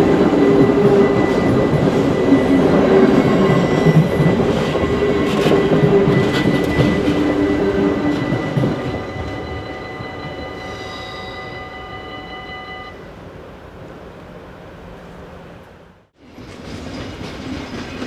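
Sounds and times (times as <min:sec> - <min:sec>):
crossing warning bell ringing: 0:00.0 - 0:13.2
electric train passing: 0:00.0 - 0:18.0.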